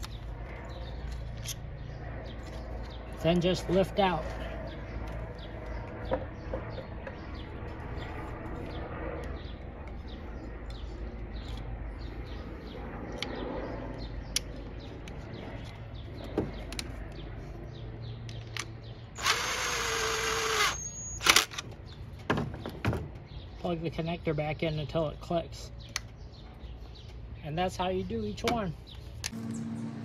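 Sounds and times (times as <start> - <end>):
cordless driver running: 19.2 - 21.5.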